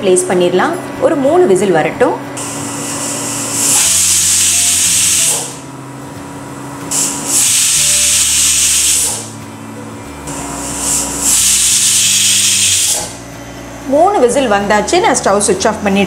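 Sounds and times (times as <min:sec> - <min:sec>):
steady low hum: 0:00.0 - 0:16.0
pressure cooker whistling: 0:02.4 - 0:05.7, 0:06.9 - 0:09.4, 0:10.3 - 0:13.2.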